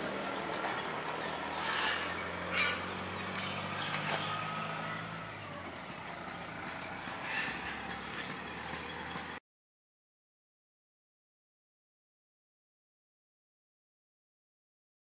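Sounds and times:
low motor hum: 0:00.0 - 0:09.4.

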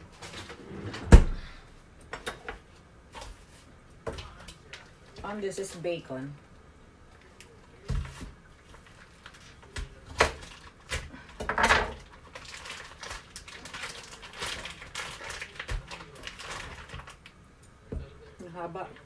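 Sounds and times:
plastic wrapping crinkling: 0:07.3 - 0:11.3, 0:11.9 - 0:17.4.

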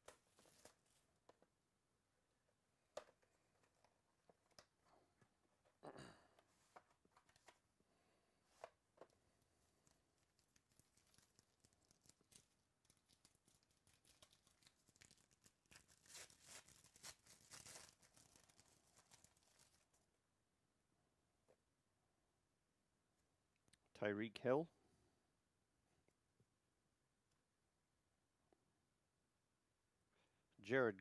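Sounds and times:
foil wrapper tearing and crinkling: 0:10.4 - 0:20.0.

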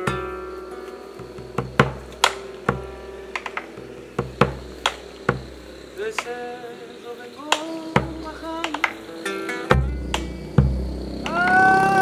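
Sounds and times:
plucked acoustic guitar: 0:00.0 - 0:11.3
bass drum strikes: 0:01.2 - 0:05.8, 0:09.7 - 0:11.2.

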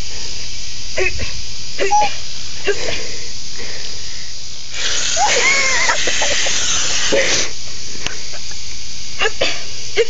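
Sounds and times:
garden hose spraying water: 0:04.7 - 0:07.5.

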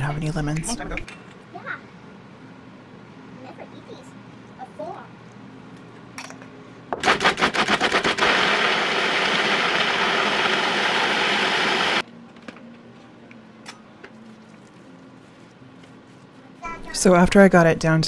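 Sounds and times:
food processor blending: 0:07.0 - 0:12.0.

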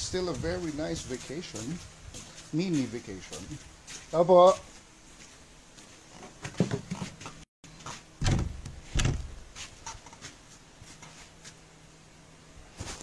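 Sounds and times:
sudden knocks and bumps: 0:08.2 - 0:09.4.

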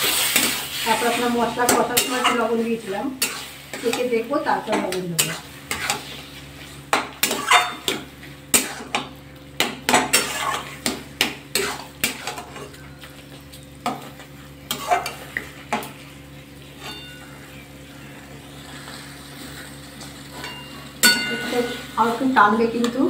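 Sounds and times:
metal spatula scraping a pot: 0:00.0 - 0:02.5, 0:03.2 - 0:04.1, 0:04.8 - 0:06.2, 0:07.2 - 0:07.9, 0:10.0 - 0:12.7, 0:14.7 - 0:15.2.

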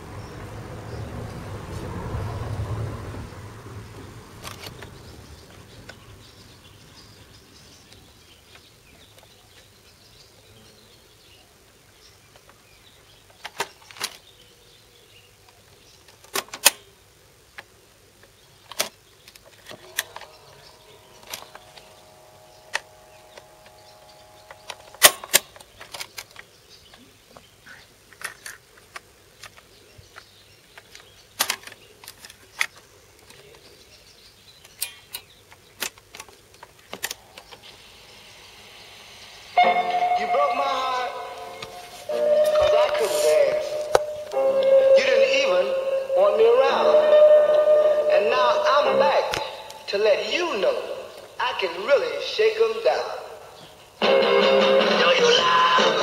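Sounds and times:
steady multi-tone hum: 0:19.4 - 0:28.2, 0:34.0 - 0:56.0
cassette recorder clicks and clunks: 0:22.7 - 0:26.4.

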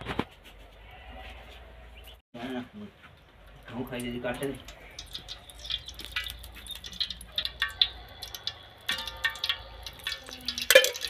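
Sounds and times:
liquid splashing and dripping: 0:03.4 - 0:11.0
ladle clattering in pot: 0:04.6 - 0:11.0.

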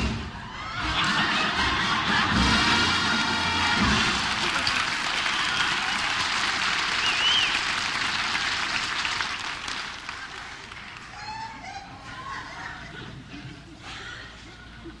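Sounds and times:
audience applauding: 0:02.1 - 0:11.4.

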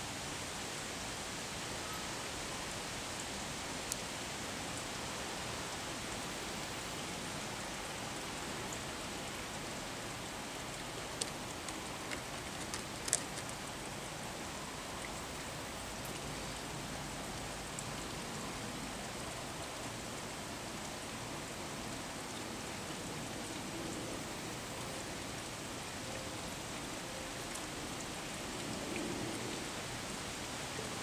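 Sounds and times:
steady hiss: 0:00.0 - 0:31.0
faint clicks: 0:11.1 - 0:13.7.

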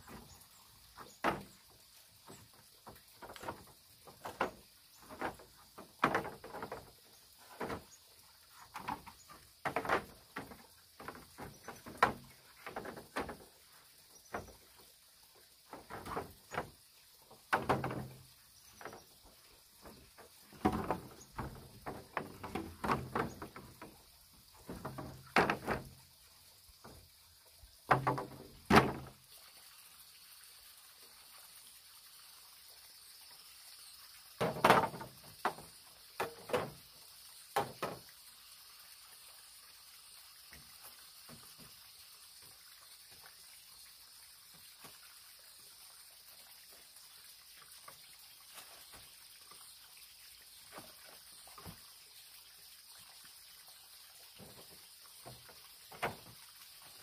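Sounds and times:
bamboo poles knocking together: 0:01.0 - 0:01.6, 0:02.5 - 0:07.9, 0:08.6 - 0:13.6, 0:15.7 - 0:19.0, 0:19.8 - 0:24.0, 0:24.6 - 0:26.0, 0:27.9 - 0:29.2, 0:34.4 - 0:36.8, 0:37.6 - 0:38.0, 0:55.2 - 0:56.4.

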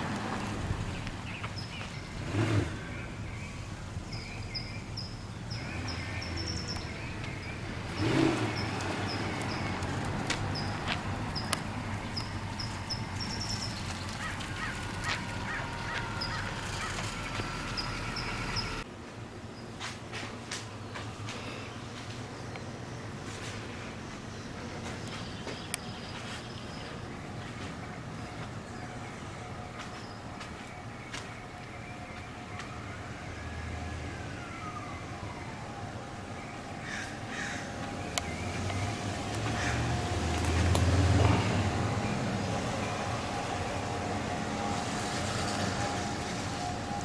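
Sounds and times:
vehicle whine passing by: 0:00.0 - 0:03.8, 0:05.4 - 0:18.9, 0:32.7 - 0:47.0
birds chirping: 0:00.0 - 0:18.8, 0:20.7 - 0:47.0
road traffic rumble: 0:00.0 - 0:47.0
harsh lower bird calls: 0:00.9 - 0:18.8, 0:36.3 - 0:40.7.

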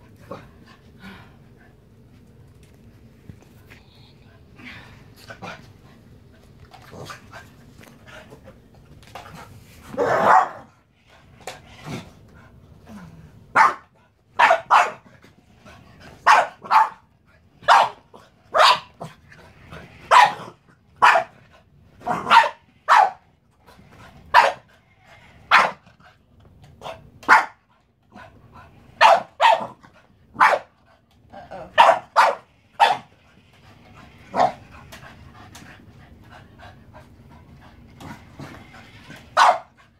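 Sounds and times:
dog barking: 0:10.0 - 0:10.7, 0:13.6 - 0:15.0, 0:16.3 - 0:17.1, 0:17.7 - 0:18.9, 0:20.1 - 0:20.4, 0:21.0 - 0:21.3, 0:22.2 - 0:23.2, 0:24.3 - 0:24.6, 0:27.3 - 0:27.6, 0:29.0 - 0:29.8, 0:30.4 - 0:30.7, 0:31.8 - 0:33.1, 0:39.4 - 0:39.7.

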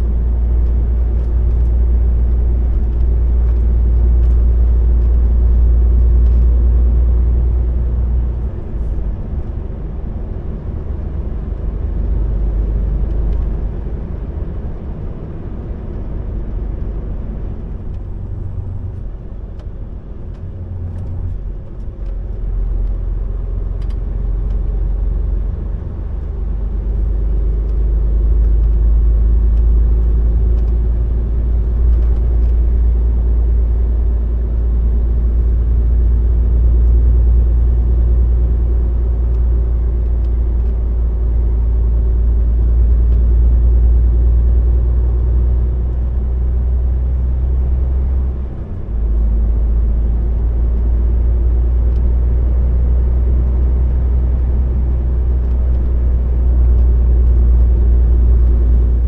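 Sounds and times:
vehicle rumbling on road: 0:00.0 - 0:59.0.

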